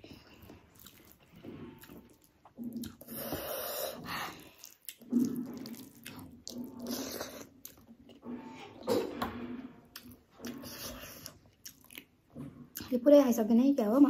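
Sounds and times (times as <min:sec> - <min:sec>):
noisy breath: 0:03.0 - 0:04.8.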